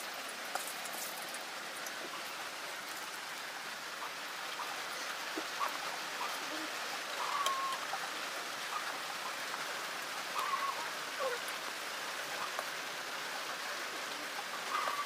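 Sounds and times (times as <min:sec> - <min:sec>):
oil sizzling while deep-frying: 0:00.0 - 0:10.6.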